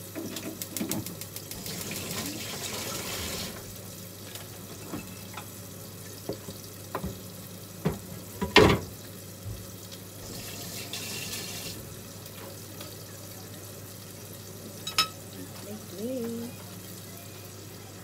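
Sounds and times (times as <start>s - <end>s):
glass bowl and utensils clinking: 14.8s - 15.2s.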